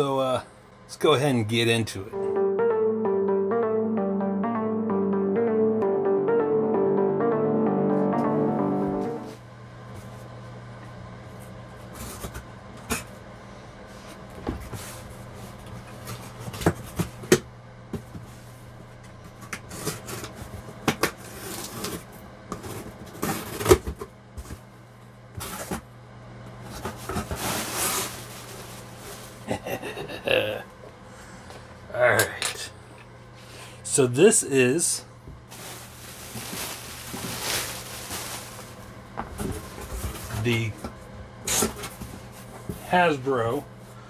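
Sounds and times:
steady low hum: 0:24.0 - 0:44.0
cardboard scraping and rustling: 0:26.7 - 0:29.3, 0:35.5 - 0:38.8.

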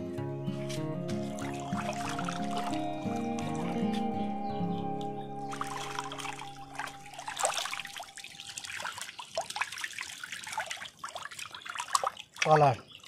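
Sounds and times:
water splashing in fish tank: 0:05.6 - 0:13.0.

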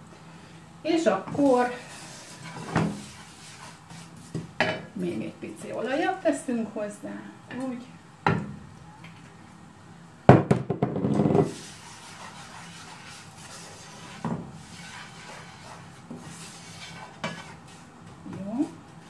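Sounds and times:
spatula scraping frying pan: 0:01.4 - 0:04.4, 0:11.2 - 0:17.9.

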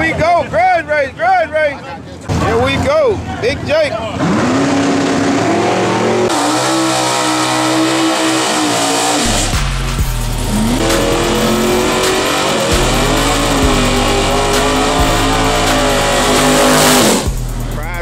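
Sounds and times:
car engine revving high: 0:04.1 - 0:17.8
tyres squealing: 0:10.3 - 0:17.2.

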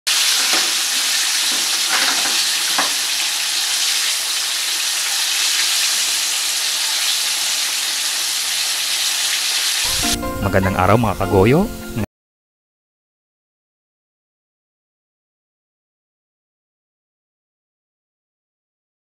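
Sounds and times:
chicken deep-frying in oil: 0:00.1 - 0:10.1.

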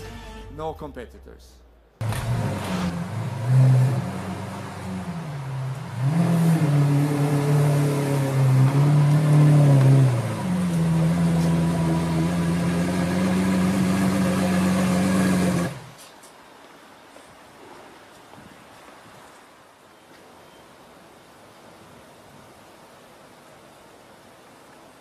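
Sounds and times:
car engine revving: 0:02.0 - 0:15.9.

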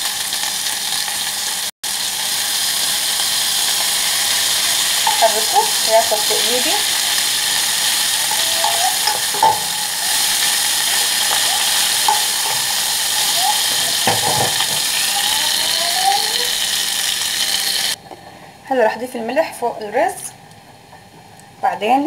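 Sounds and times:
rice sizzling in fat: 0:00.0 - 0:18.0
wooden spoon scraping pot: 0:05.1 - 0:15.1.

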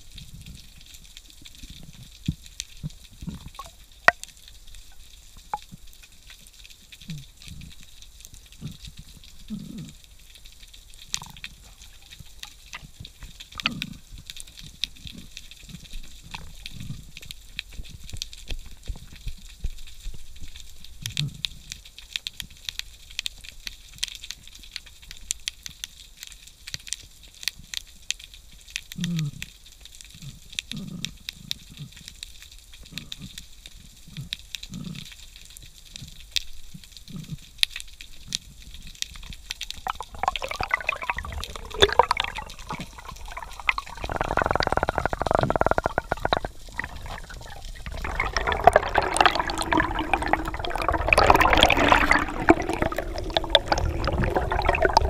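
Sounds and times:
rush of water and bubbling: 0:00.0 - 0:21.7, 0:38.6 - 0:55.0
low underwater thuds: 0:39.7 - 0:55.0.

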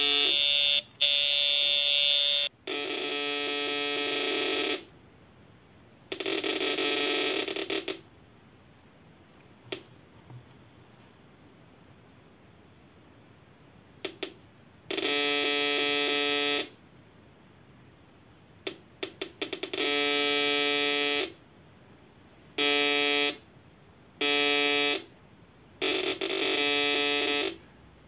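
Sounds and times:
metal detector buzzing tone: 0:00.0 - 0:04.8, 0:25.8 - 0:27.6.

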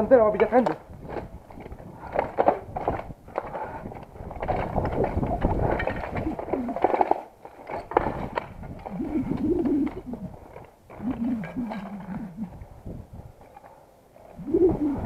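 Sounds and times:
footsteps crunching over rubble: 0:00.0 - 0:09.0, 0:09.8 - 0:11.6.

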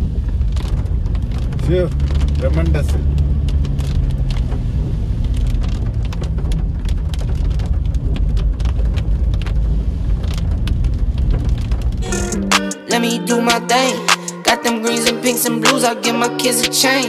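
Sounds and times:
engine and road rumble: 0:00.0 - 0:12.6.

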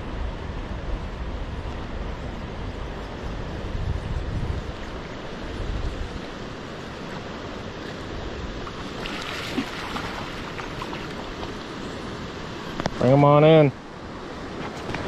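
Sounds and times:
wind buffeting microphone: 0:00.0 - 0:13.0
river current rushing: 0:00.0 - 0:15.0
fish splashing at surface: 0:08.7 - 0:11.5.

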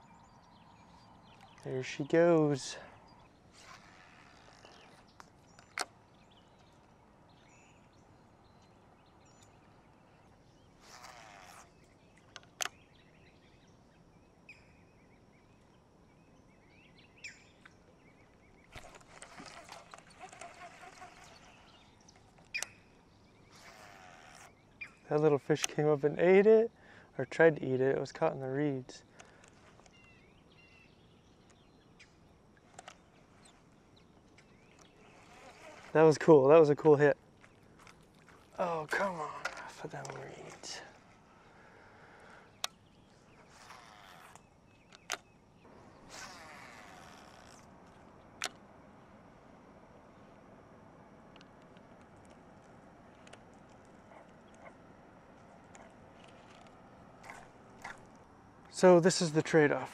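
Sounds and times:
faint bird chirps: 0:00.0 - 0:25.4.

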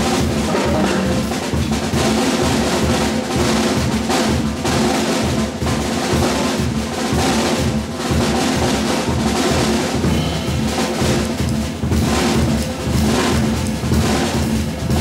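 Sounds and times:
drum kit: 0:00.0 - 0:15.0.

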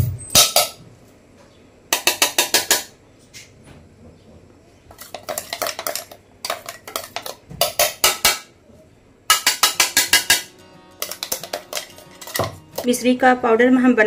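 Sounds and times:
spoon tapping steel jar: 0:05.0 - 0:08.4, 0:09.3 - 0:12.9.

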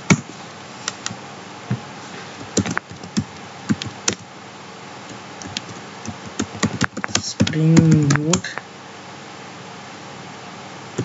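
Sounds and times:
keyboard keystrokes: 0:02.4 - 0:04.2, 0:05.4 - 0:08.6.

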